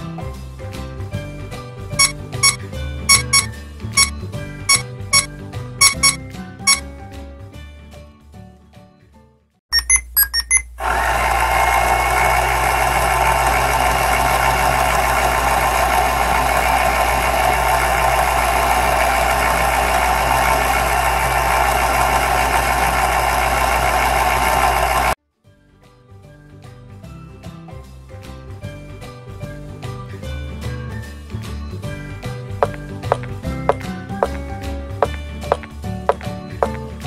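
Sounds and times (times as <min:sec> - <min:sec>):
toy washing machine beeps: 0:02.0 - 0:06.8, 0:09.7 - 0:10.8
small motor whirring: 0:10.8 - 0:25.2.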